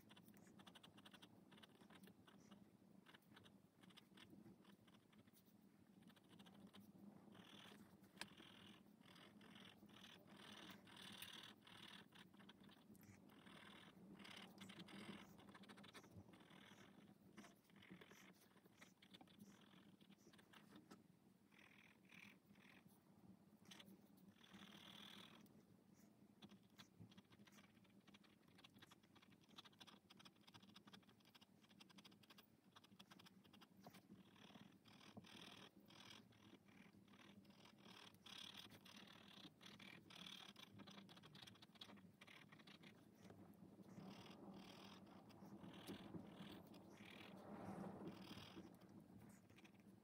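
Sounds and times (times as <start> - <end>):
felt-tip marker scratching paper: 0.0 - 21.0
low steady hum: 0.0 - 50.0.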